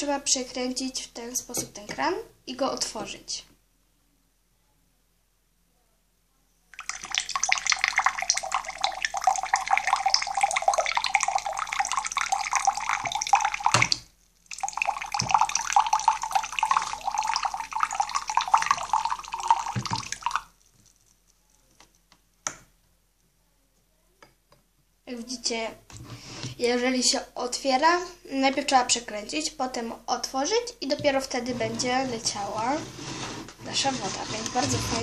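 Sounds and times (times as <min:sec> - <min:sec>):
water pouring into a glass: 0:06.8 - 0:21.0.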